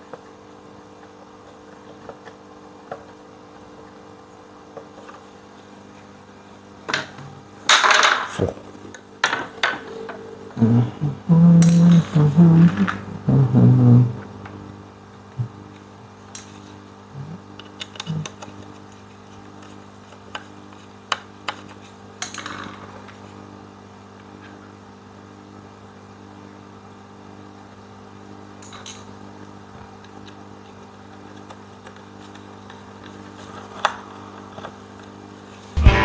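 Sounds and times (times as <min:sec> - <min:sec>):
low hum: 0:08.4 - 0:14.6.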